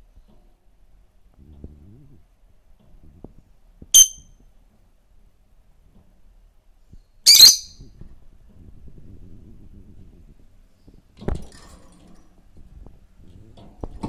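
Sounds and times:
bird chirping shrilly: 4.0s - 4.2s, 7.3s - 7.8s.

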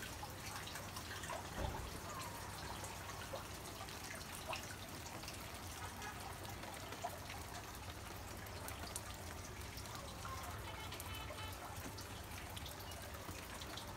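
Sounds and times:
small water drips: 0.0s - 13.9s
water trickling: 0.0s - 13.9s.

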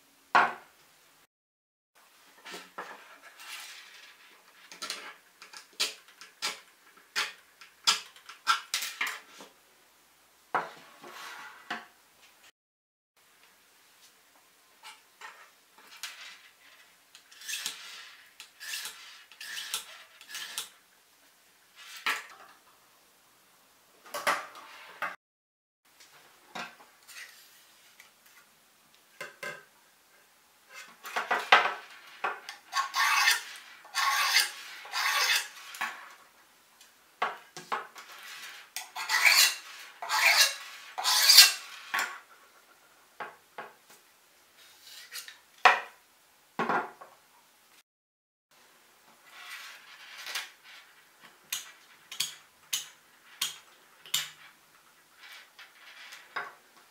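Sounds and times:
sharpener scraping metal blade: 18.6s - 20.7s, 32.7s - 35.6s, 38.8s - 41.6s.

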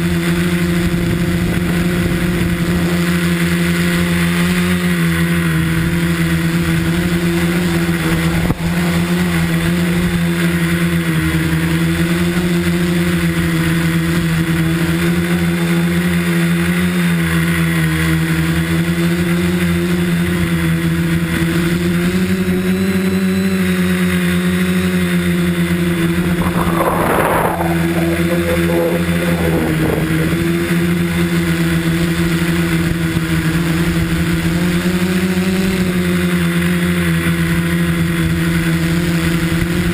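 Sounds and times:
drone propellers buzzing: 5.2s - 12.6s, 24.0s - 32.6s
rushing noise burst: 26.0s - 31.1s.

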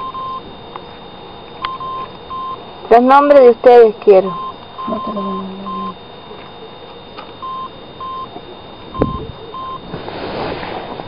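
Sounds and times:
short electronic beep: 3.4s - 6.0s, 7.0s - 10.0s
rustling hiss: 9.2s - 11.0s.

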